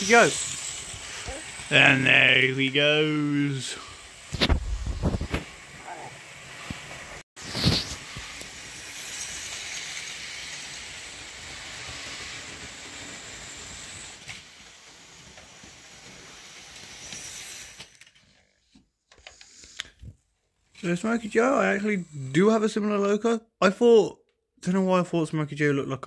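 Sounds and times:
model train motor whirring: 0:00.0 - 0:04.5, 0:07.6 - 0:18.3, 0:19.2 - 0:20.0, 0:20.8 - 0:22.5.

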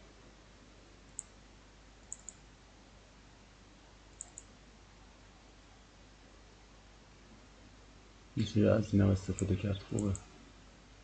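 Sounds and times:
faint steady hiss: 0:00.0 - 0:11.0
computer mouse clicks: 0:01.1 - 0:01.4, 0:02.0 - 0:02.4, 0:04.1 - 0:04.5, 0:09.3 - 0:10.3.

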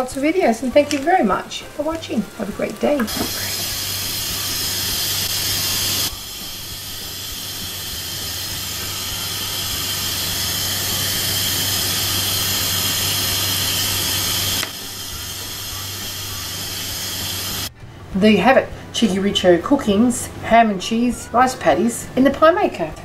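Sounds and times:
butter and patties sizzling: 0:00.0 - 0:17.7.

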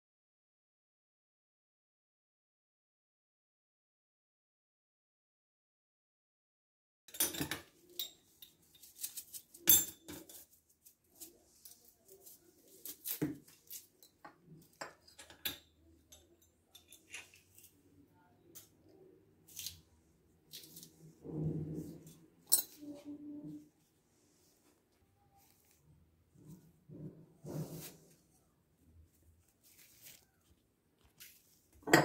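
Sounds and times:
rustling scrape: 0:07.8 - 0:14.1, 0:20.5 - 0:24.8, 0:25.4 - 0:31.8.

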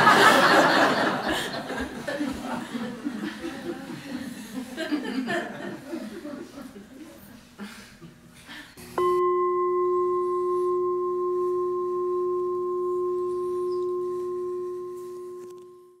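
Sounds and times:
singing bowl struck and ringing: 0:09.0 - 0:16.0.

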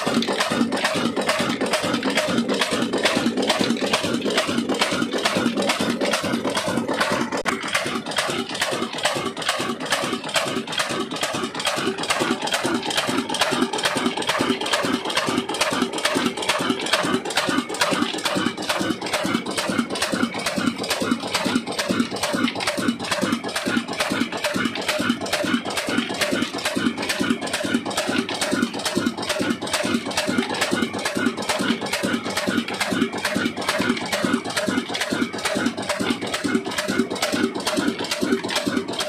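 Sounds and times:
diesel engine running steadily: 0:00.0 - 0:39.0.

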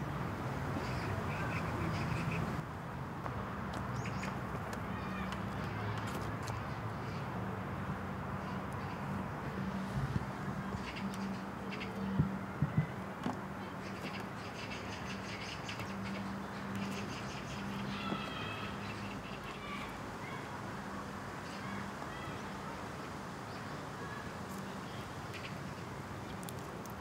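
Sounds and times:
birds chattering calls: 0:00.8 - 0:02.6, 0:13.6 - 0:19.9.

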